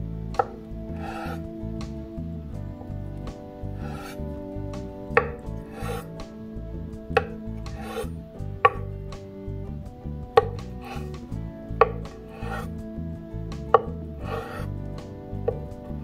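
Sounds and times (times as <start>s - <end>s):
knife scraping: 1.0s - 1.4s, 3.8s - 4.2s, 5.2s - 6.1s, 7.2s - 8.1s, 10.4s - 11.2s, 11.8s - 12.7s, 13.8s - 14.7s.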